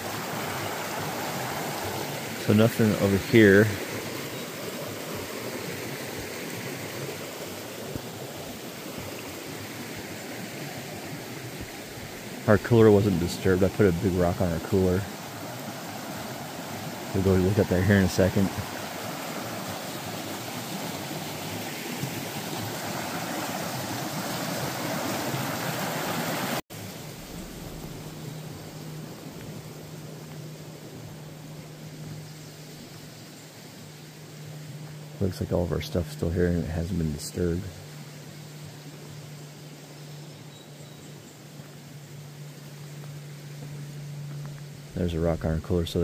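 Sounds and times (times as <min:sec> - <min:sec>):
river water rushing: 0:00.0 - 0:39.9
faint low hum: 0:26.8 - 0:46.0.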